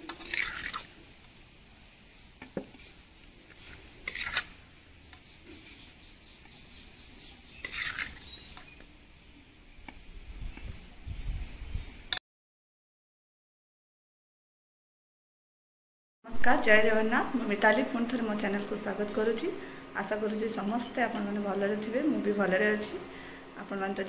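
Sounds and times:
metal spoon scraping a steel pot: 0.0 - 0.9, 3.5 - 4.6, 7.5 - 8.4.

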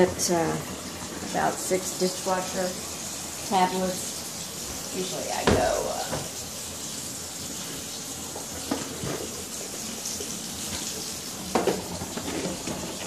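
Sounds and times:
water pouring into a bathtub: 0.0 - 13.0.

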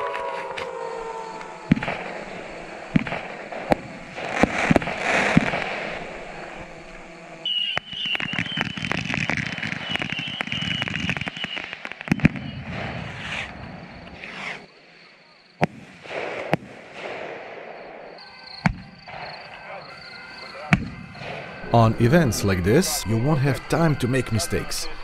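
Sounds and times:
pyrotechnic bangs and cracks: 1.6 - 14.7, 15.6 - 19.5.

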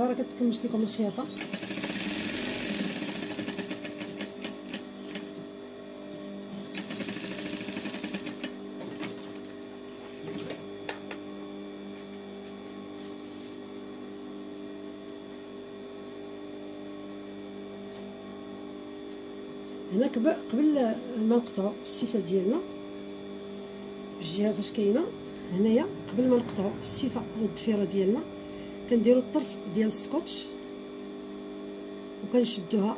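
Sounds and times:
sewing machine stitching: 1.3 - 5.3, 6.6 - 9.3
steady hum: 19.4 - 32.9.

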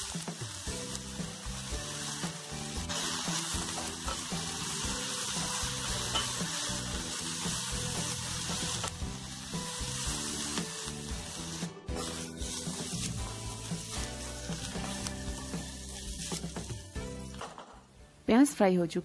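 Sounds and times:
onions sizzling in oil: 0.0 - 17.3.

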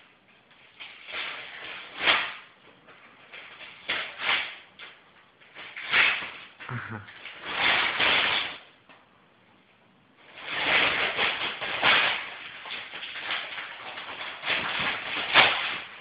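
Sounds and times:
wrapping paper tearing and rustling: 0.6 - 6.6, 7.2 - 8.7, 10.2 - 16.0.

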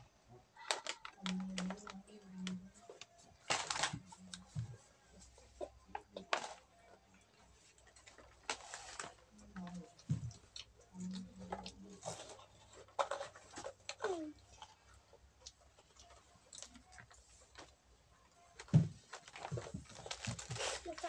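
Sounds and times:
children crunching snacks: 0.6 - 4.5, 7.8 - 17.8, 19.2 - 21.0
plastic snack packets rustling: 0.6 - 5.4, 6.0 - 6.7, 7.4 - 17.8, 18.6 - 21.0.

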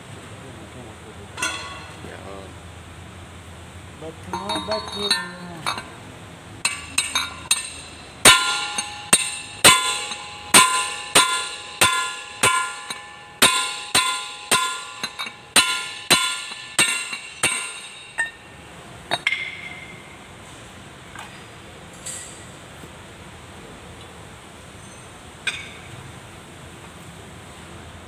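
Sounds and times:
hammer striking steel bar: 4.3 - 5.9, 6.6 - 18.5, 19.1 - 20.1.

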